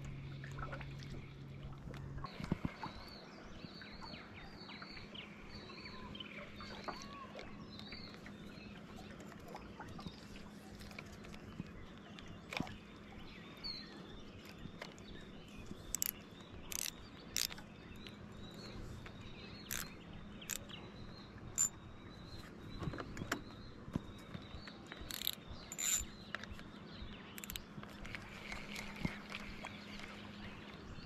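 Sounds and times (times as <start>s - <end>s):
low steady hum: 0.0s - 31.0s
bird chirps: 13.2s - 27.8s.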